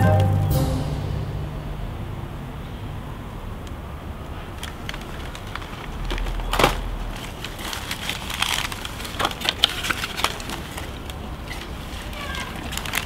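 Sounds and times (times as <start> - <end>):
paper bag crinkling: 4.5 - 13.0.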